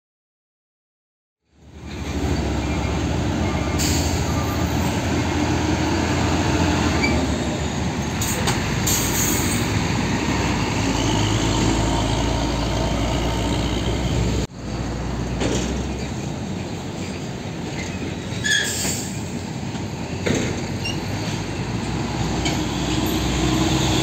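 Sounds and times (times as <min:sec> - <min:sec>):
diesel truck engine running: 0:01.7 - 0:18.3.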